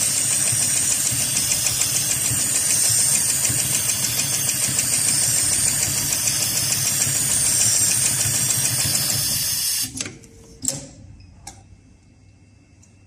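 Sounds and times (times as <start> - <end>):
sewing machine stitching rapidly: 0.0 - 9.9.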